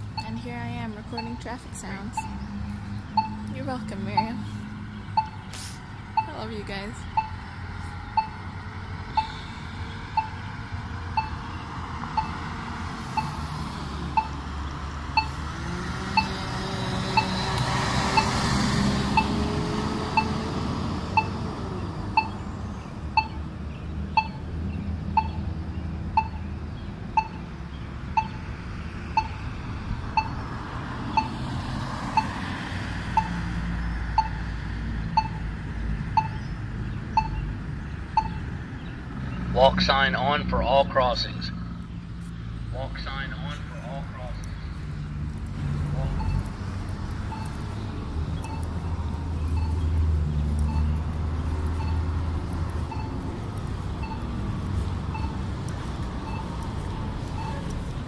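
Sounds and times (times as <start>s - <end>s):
road traffic: 0.0s - 58.0s
vehicle passing: 0.0s - 58.0s
short sharp beeps: 1.1s - 2.4s, 3.1s - 3.5s, 5.1s - 5.5s, 6.1s - 6.4s, 7.0s - 7.5s, 8.1s - 8.5s, 9.1s - 9.5s, 10.1s - 10.5s, 11.1s - 12.4s, 13.1s - 13.5s, 14.1s - 14.4s, 15.1s - 15.4s, 16.1s - 16.4s, 17.1s - 18.4s, 19.1s - 19.4s, 20.1s - 20.4s, 21.2s - 21.4s, 22.2s - 22.4s, 23.2s - 23.4s, 24.1s - 24.4s, 25.2s - 25.4s, 26.2s - 26.5s, 27.2s - 27.5s, 28.2s - 28.4s, 29.1s - 29.4s, 30.2s - 30.4s, 31.1s - 31.4s, 33.2s - 33.4s, 34.1s - 34.5s, 35.2s - 35.5s, 36.1s - 36.4s, 37.1s - 37.5s, 38.2s - 38.5s, 46.1s - 46.5s, 47.3s - 47.6s, 48.4s - 48.7s, 49.5s - 49.9s, 50.6s - 51.0s, 51.7s - 52.1s, 52.9s - 53.2s, 54.0s - 54.3s, 55.1s - 55.5s, 56.2s - 57.7s.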